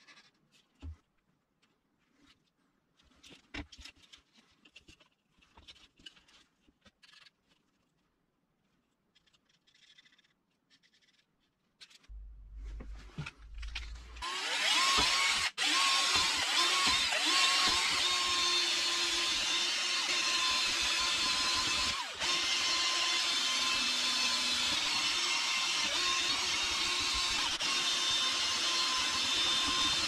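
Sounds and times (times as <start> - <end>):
marker scratching on plastic: 9.0 - 12.1
cordless drill whining: 14.1 - 30.0.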